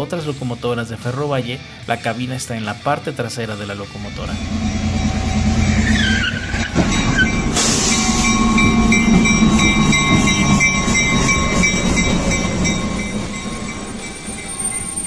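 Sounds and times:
locomotive engine passing: 0:04.2 - 0:15.0
freight cars rolling on rails: 0:04.4 - 0:15.0
thin high whine: 0:09.1 - 0:15.0.

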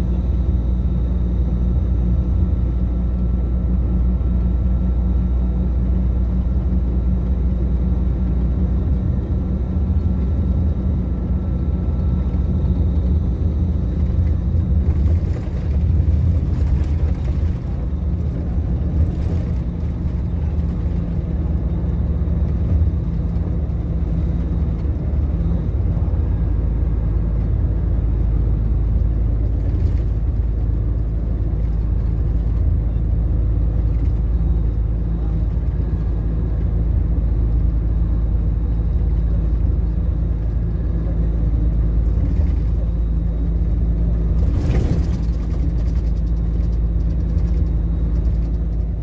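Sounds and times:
vehicle engine and tyre rumble: 0:00.0 - 0:49.0.

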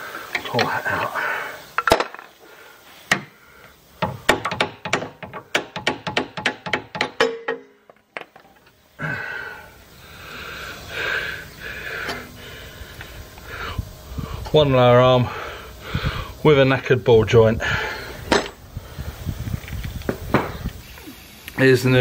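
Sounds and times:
sharp metal knocks: 0:04.0 - 0:07.8.

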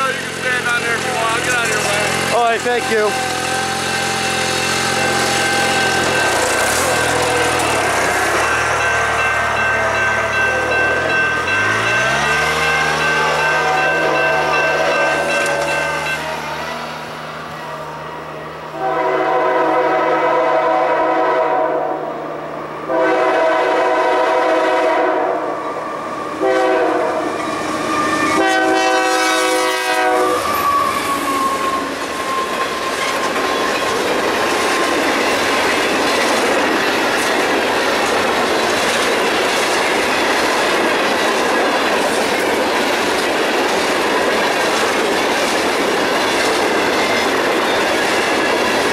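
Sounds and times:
train cars rumbling and clacking: 0:00.0 - 0:21.6, 0:22.4 - 0:48.9
locomotive horn blasts: 0:03.0 - 0:08.1, 0:10.3 - 0:16.6, 0:18.7 - 0:22.2, 0:22.9 - 0:25.6, 0:26.4 - 0:27.4, 0:28.2 - 0:30.8.

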